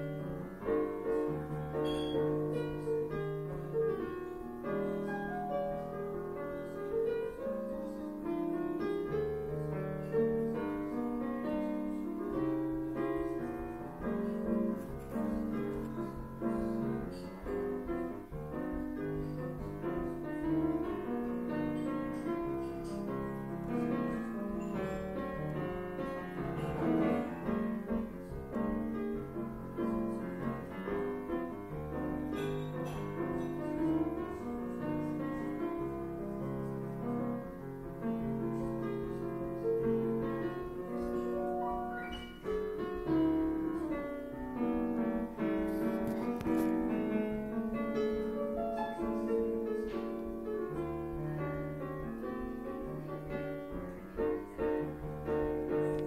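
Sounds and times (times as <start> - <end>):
piano music: 0.0 - 56.0.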